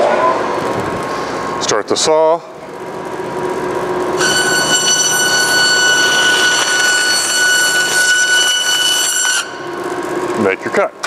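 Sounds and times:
bandsaw whining: 4.2s - 9.8s.

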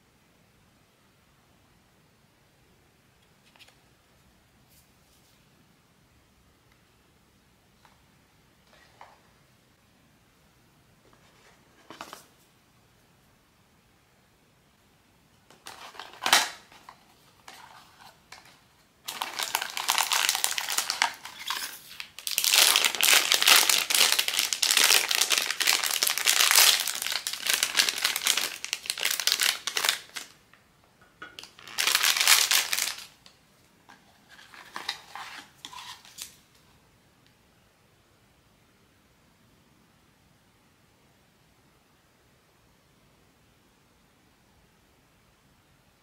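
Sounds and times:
wrapper crinkling and rustling: 15.6s - 30.4s, 31.4s - 33.3s, 34.1s - 36.4s.

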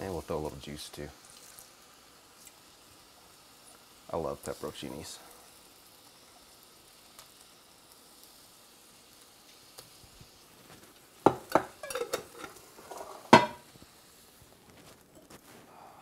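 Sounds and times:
onions sizzling in skillet: 0.0s - 16.0s
glass jar knocking on countertop: 11.3s - 11.7s, 13.3s - 13.6s.

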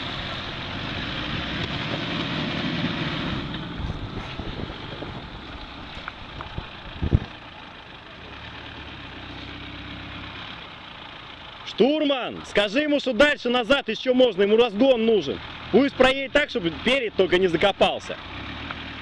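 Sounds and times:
wind rumble on microphone: 2.8s - 7.4s.

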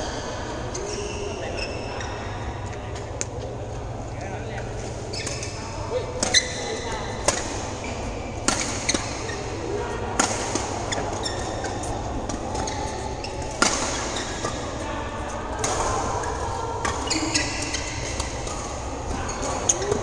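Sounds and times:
sports hall background din: 0.0s - 20.0s
racket striking shuttlecock: 8.4s - 9.2s, 10.2s - 12.8s, 13.4s - 14.6s.

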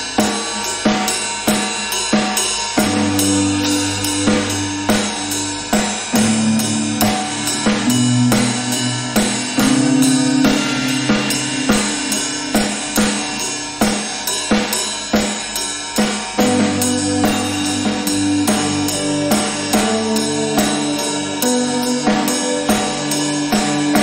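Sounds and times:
drum kit beat: 0.0s - 24.0s
sustained guitar notes: 2.8s - 14.1s, 16.4s - 24.0s.

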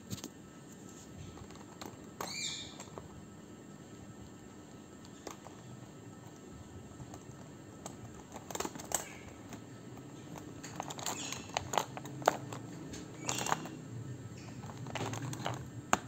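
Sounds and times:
plastic pens clicking and clattering: 1.2s - 3.1s, 7.0s - 13.8s, 14.4s - 16.0s.

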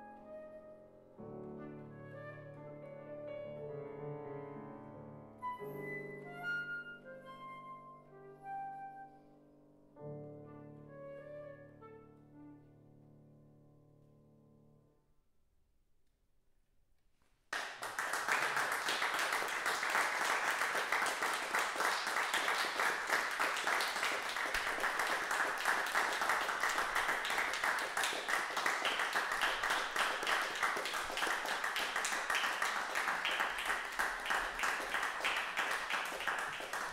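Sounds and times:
audience applauding: 17.6s - 36.9s.

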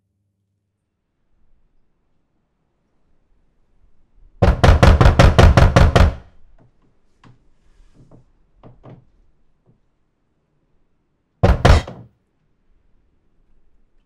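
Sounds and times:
rapid knocking on door: 4.4s - 6.3s, 11.4s - 12.1s.

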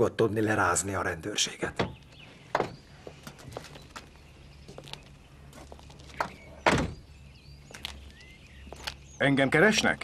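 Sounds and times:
footsteps: 2.2s - 6.6s.

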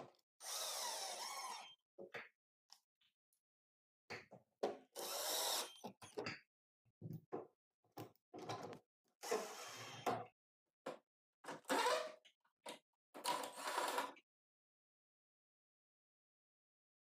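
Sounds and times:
cordless drill driving screws: 0.4s - 1.6s, 5.0s - 5.8s.

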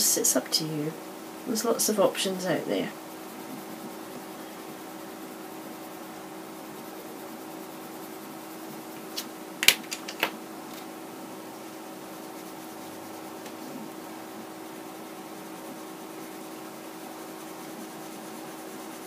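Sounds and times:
pencils clicking: 9.1s - 10.9s.

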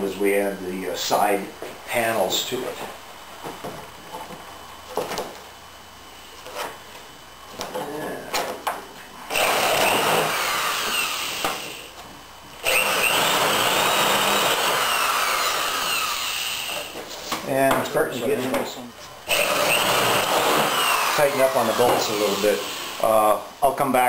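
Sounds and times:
electric drill whining: 9.3s - 11.9s, 12.6s - 17.0s, 19.3s - 23.3s.

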